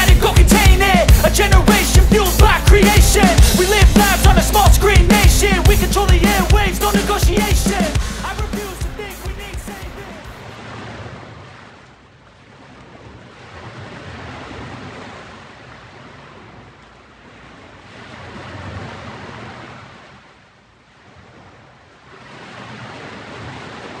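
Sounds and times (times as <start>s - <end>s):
waves breaking and washing in: 7.9s - 24.0s.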